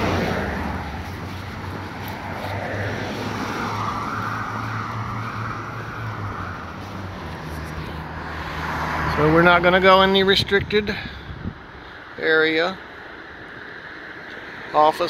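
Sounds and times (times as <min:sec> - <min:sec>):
road noise: 0:00.0 - 0:15.0
traffic engine hum: 0:00.0 - 0:15.0.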